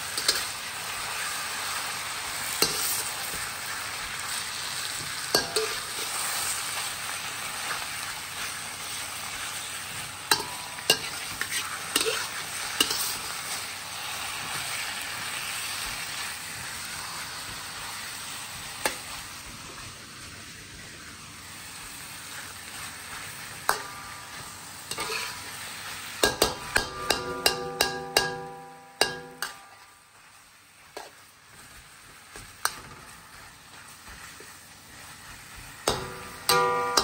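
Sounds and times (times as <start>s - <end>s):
metal spatula scraping wok: 0.0s - 17.4s, 22.3s - 30.0s, 32.6s - 37.0s
food sizzling in a wok: 0.0s - 37.0s
spatula clanking on ringing wok: 5.3s - 5.9s, 10.3s - 11.2s, 12.0s - 13.2s, 23.7s - 25.4s, 26.2s - 29.9s, 35.8s - 37.0s.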